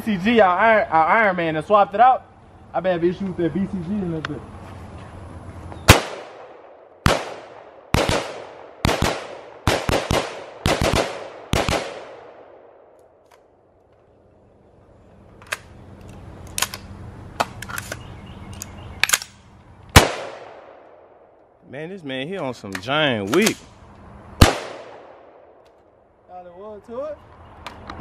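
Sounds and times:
rifle shots: 0:05.9 - 0:12.8, 0:19.0 - 0:21.1, 0:24.4 - 0:25.6.

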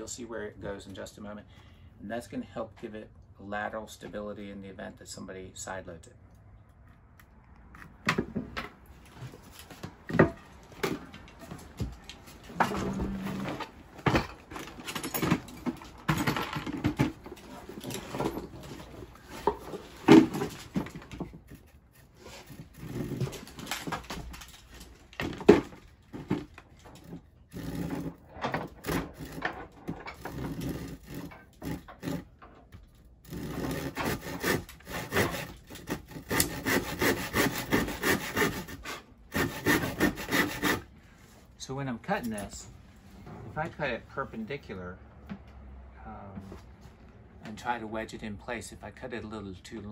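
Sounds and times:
handsaw cutting wood: 0:21.5 - 0:23.8, 0:27.0 - 0:29.5, 0:30.2 - 0:32.3, 0:33.2 - 0:40.9.

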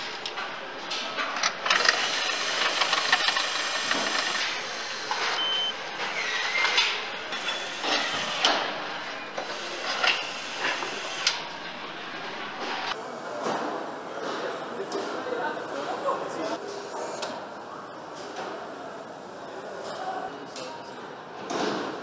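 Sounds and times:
power tool clicks and clanks: 0:00.0 - 0:13.0
short electronic beep: 0:05.3 - 0:05.8.

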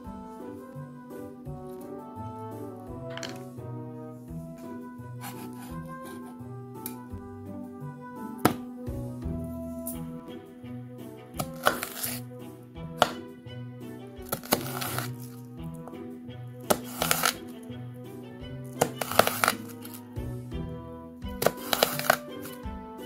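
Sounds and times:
background music: 0:00.0 - 0:23.0
knife slicing onion on board: 0:05.2 - 0:07.0, 0:08.4 - 0:08.7, 0:11.4 - 0:12.3, 0:13.0 - 0:13.3, 0:14.3 - 0:15.4, 0:16.6 - 0:17.5, 0:18.7 - 0:20.0, 0:21.3 - 0:22.6.

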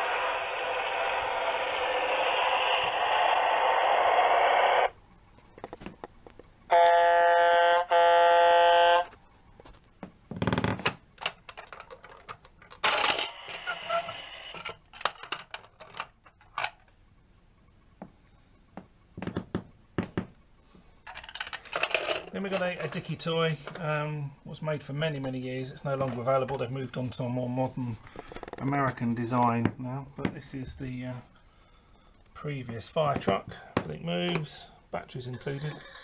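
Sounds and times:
loud electronic toy noise: 0:00.0 - 0:05.0, 0:06.7 - 0:09.2, 0:12.8 - 0:14.7
plastic toy clicks and knocks: 0:11.2 - 0:13.4, 0:14.5 - 0:16.8, 0:21.1 - 0:22.9.

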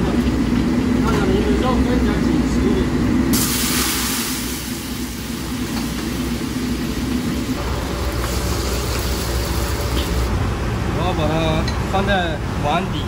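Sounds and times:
gas burner rumble: 0:00.0 - 0:12.8
oil sizzling and bubbling: 0:03.3 - 0:10.7.

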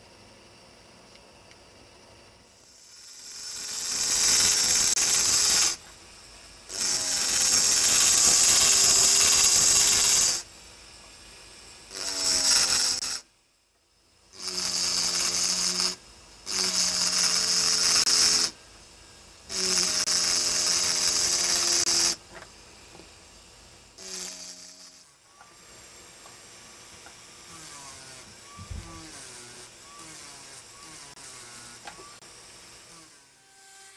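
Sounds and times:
drill burr grinding glass: 0:02.7 - 0:05.9, 0:06.7 - 0:10.5, 0:11.9 - 0:13.3, 0:14.3 - 0:18.6, 0:19.5 - 0:22.2, 0:23.9 - 0:33.9
motor hum: 0:14.2 - 0:33.7.

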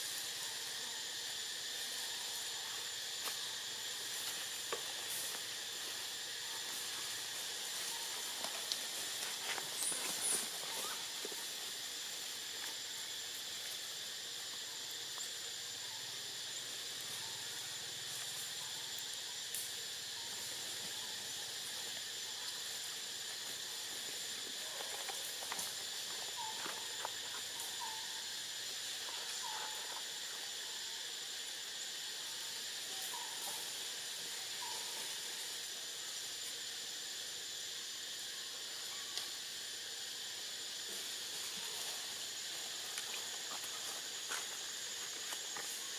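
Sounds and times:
insect chorus droning: 0:00.0 - 0:45.9.

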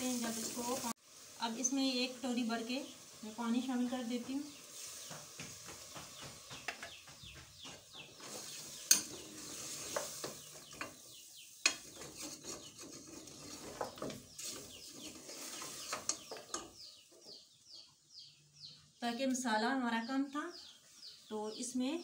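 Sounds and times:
faint sizzle of frying: 0:00.0 - 0:17.9
metal spoon stirring and scraping: 0:08.2 - 0:16.9
spoon clanking against pot: 0:08.8 - 0:09.2, 0:09.9 - 0:11.0, 0:11.6 - 0:14.5.

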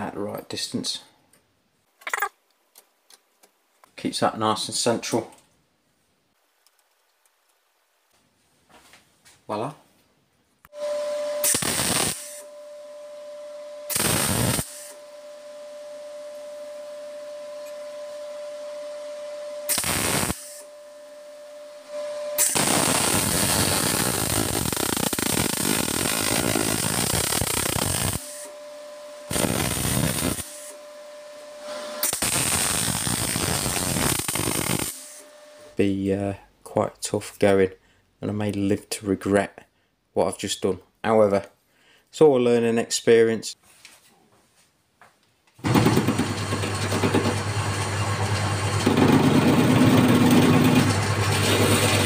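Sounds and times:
welding arc buzzing: 0:10.7 - 0:12.5, 0:13.8 - 0:15.0, 0:19.6 - 0:20.7, 0:22.0 - 0:35.8, 0:45.6 - 0:52.0
steady high whine: 0:10.7 - 0:35.8.

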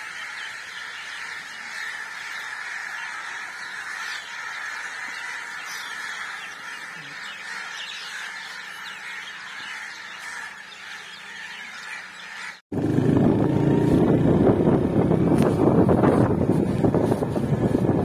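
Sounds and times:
chorus of birds calling: 0:00.0 - 0:12.6
motorcycle noise: 0:12.7 - 0:18.0
wind rushing over microphone: 0:12.7 - 0:18.0.

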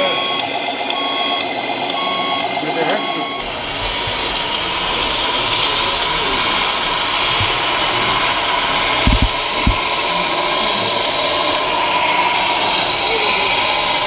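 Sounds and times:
steady whirring blower noise: 0:00.0 - 0:14.0
short low thuds: 0:09.0 - 0:09.8.

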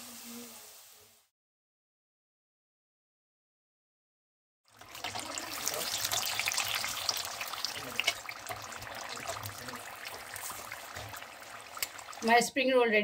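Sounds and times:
food deep-frying in hot oil: 0:00.0 - 0:01.3, 0:04.7 - 0:12.5.

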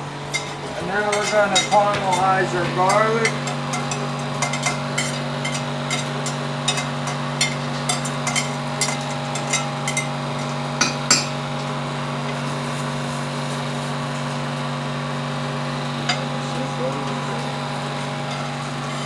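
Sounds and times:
range hood fan hum: 0:00.0 - 0:19.0
utensil knocking on cookware: 0:00.3 - 0:11.4.

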